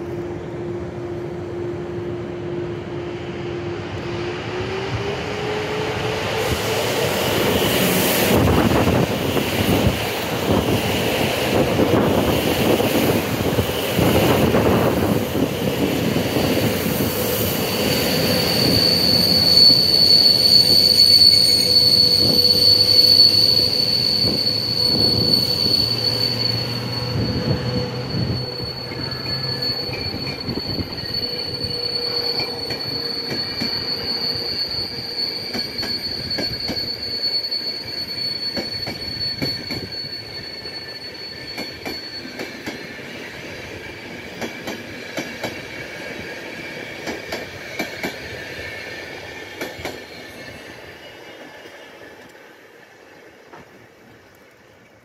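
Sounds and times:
train hum: 0.0 - 55.0
high-pitched wheel squeal: 4.3 - 52.3
train wheels clattering over track: 28.8 - 50.8.

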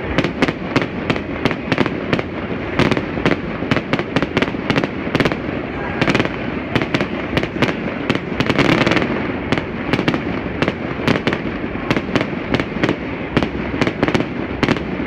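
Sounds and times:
fireworks bangs echoing: 0.0 - 15.0.

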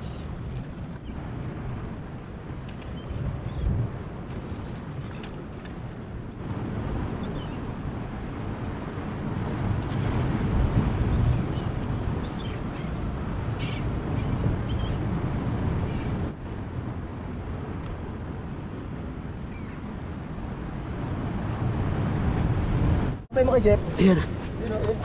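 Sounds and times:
sea surf: 0.0 - 25.0
wind rumble: 0.0 - 25.0.

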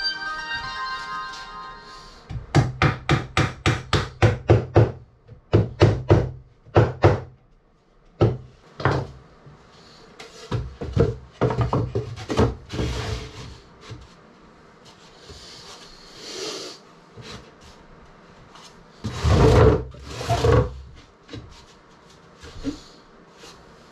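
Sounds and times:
hammering on wood: 2.3 - 7.4, 8.2 - 9.1.

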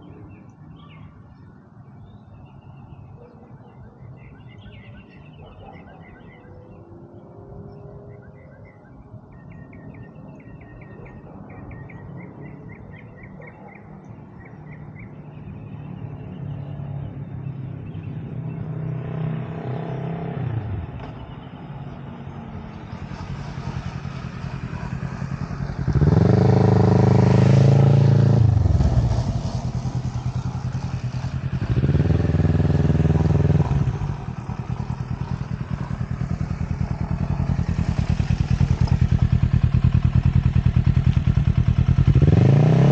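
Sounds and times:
motorcycle engine: 18.8 - 42.9.

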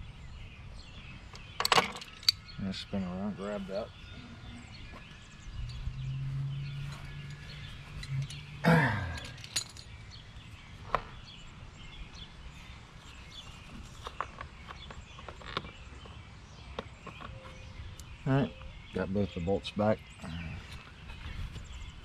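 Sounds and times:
birds chirping: 0.0 - 22.0
low hum sliding down in pitch: 5.4 - 8.7.

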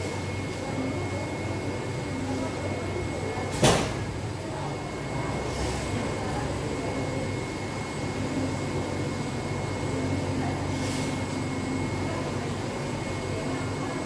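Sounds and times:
motor and fan hum: 0.0 - 14.0.

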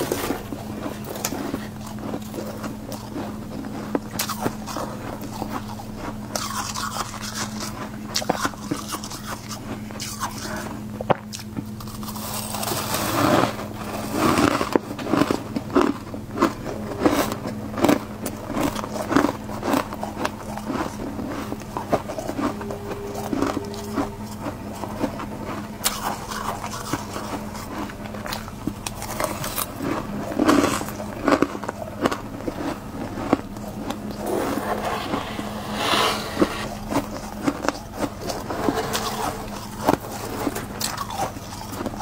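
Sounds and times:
crunchy chewing: 0.0 - 35.5, 36.6 - 42.0
freezer hum: 0.0 - 42.0
metal spoon scraping frost: 34.1 - 41.8.

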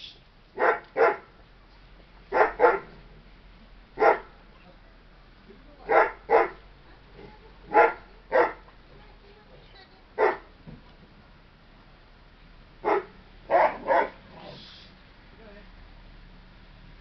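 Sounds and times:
dog barking: 0.6 - 1.3, 2.3 - 3.0, 4.0 - 4.3, 5.9 - 6.6, 7.7 - 8.7, 10.2 - 10.5, 12.8 - 14.6.

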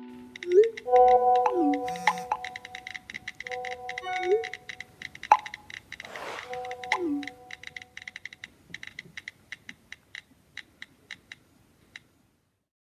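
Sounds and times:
held notes: 0.0 - 8.2
faint irregular clicking: 0.1 - 12.1.

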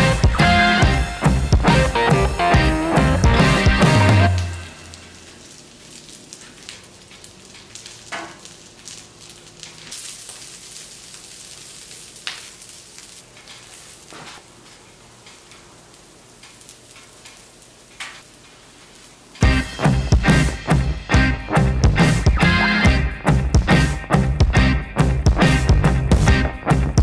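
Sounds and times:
vegetables sizzling on griddle: 3.8 - 19.6.

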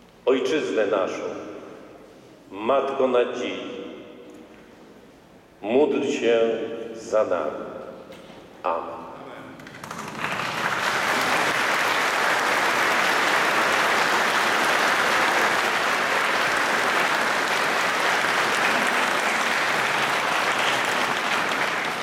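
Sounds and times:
crowd applauding: 9.6 - 22.0.

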